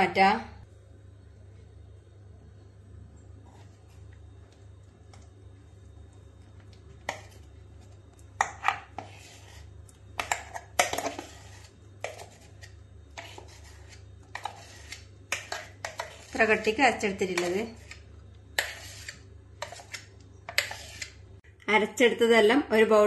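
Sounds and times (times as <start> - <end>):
metal spoon scraping steel bowl: 8.4 - 21.2.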